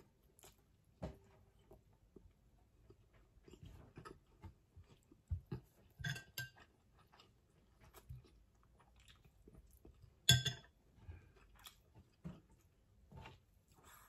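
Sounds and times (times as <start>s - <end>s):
close-up eating noises: 0.0s - 14.0s
metal spoon clinking glass bowl: 10.3s - 10.7s.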